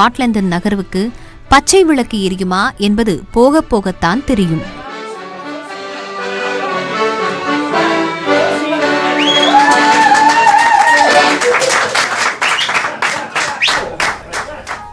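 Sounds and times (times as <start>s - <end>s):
music with sliding melody: 3.7s - 10.2s
people clapping in rhythm: 9.2s - 14.9s.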